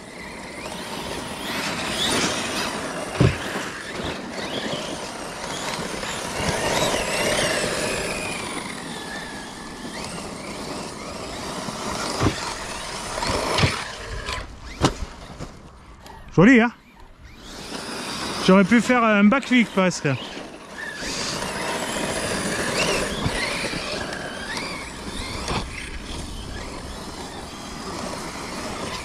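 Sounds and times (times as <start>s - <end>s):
electric motor whine: 0.0s - 29.0s
tyres rushing on dirt: 0.0s - 29.0s
sharp thumps: 3.0s - 4.0s, 12.0s - 16.1s.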